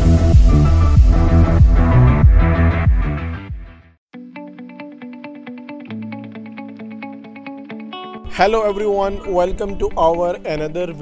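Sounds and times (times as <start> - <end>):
electronic music with heavy bass: 0.0 - 4.0.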